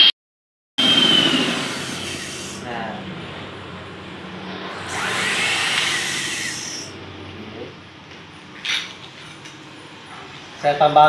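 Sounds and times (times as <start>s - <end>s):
electric hand mixer whirring: 4.6s - 6.9s.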